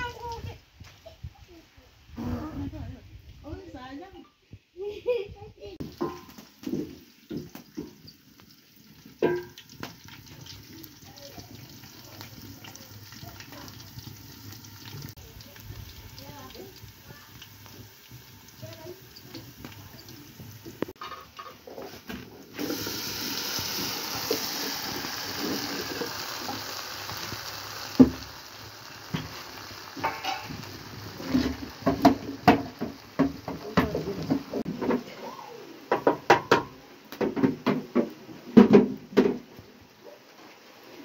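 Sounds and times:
pot boiling with steady hiss: 0.0 - 41.0
pots and utensils clattering: 5.8 - 8.4, 9.0 - 10.7, 18.8 - 23.2, 29.1 - 35.2.

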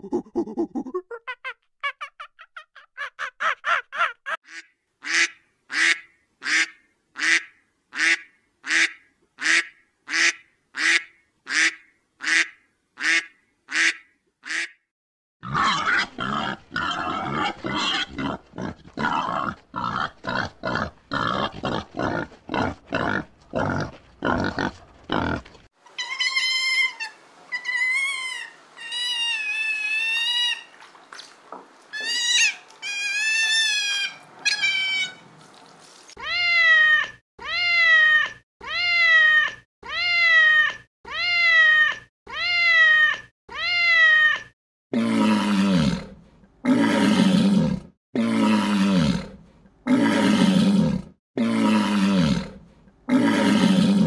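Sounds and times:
boar grunting: 0.0 - 1.0, 15.4 - 25.7, 44.9 - 54.0
otters chirping and squeaking: 31.9 - 35.2.

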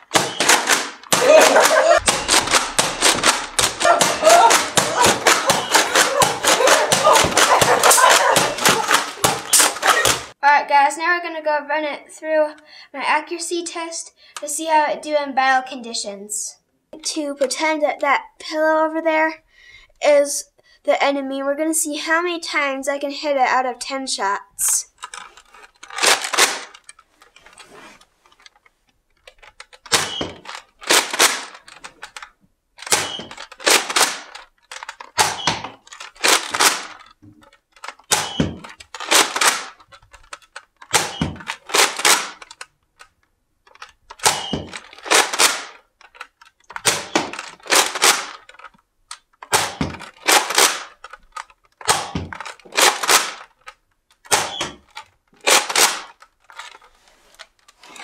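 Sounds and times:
toy blaster plastic clacks: 0.0 - 10.4, 24.9 - 27.6, 28.3 - 58.0.

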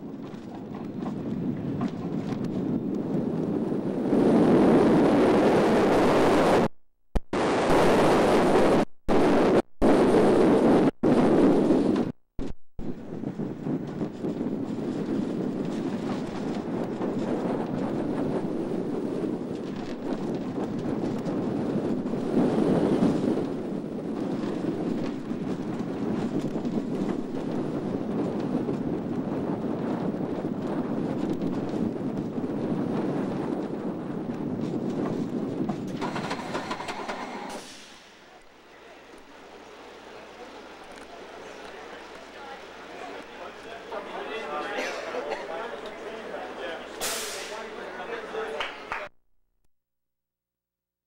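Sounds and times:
roller coaster train on steel track: 0.0 - 6.6, 12.9 - 49.1
wind on microphone: 0.0 - 6.7, 7.3 - 37.8.

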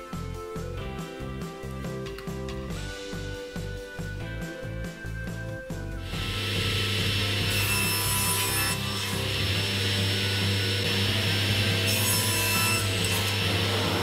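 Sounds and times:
table saw motor hum: 6.0 - 14.0
saw blade cutting wood: 6.1 - 14.0.

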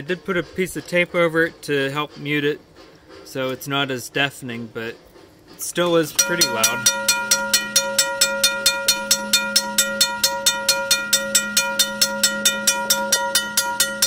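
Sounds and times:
railroad crossing bell ringing: 6.1 - 14.0.

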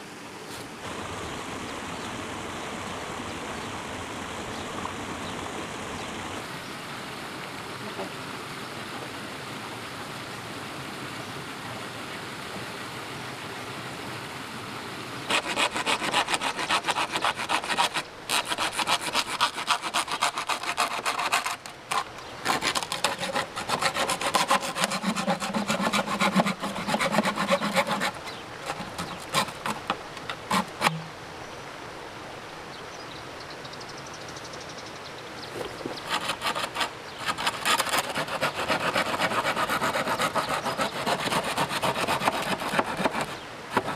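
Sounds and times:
hand saw cutting bamboo: 15.3 - 31.1, 36.0 - 43.9.

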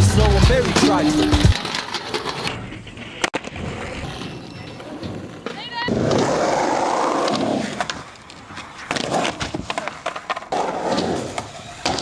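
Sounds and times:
skateboard wheels rolling: 0.0 - 12.0
skateboard clacks on ground: 7.2 - 12.0.

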